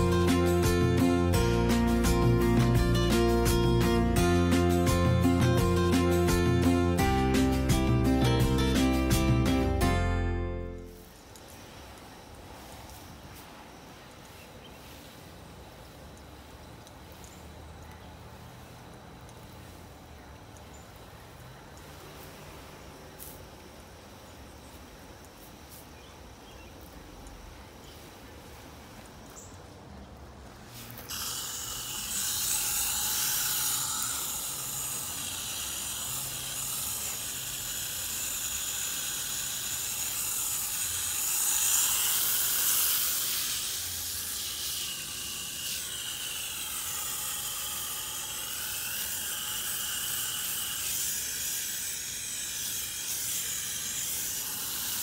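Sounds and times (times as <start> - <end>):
hose nozzle spray hissing: 0.0 - 9.8, 21.8 - 24.2, 30.5 - 55.0.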